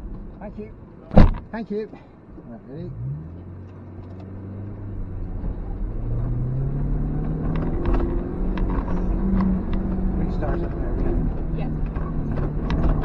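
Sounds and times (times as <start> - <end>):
car rattling over rough track: 1.0 - 1.9, 5.3 - 13.0
car engine revving under load: 2.4 - 13.0.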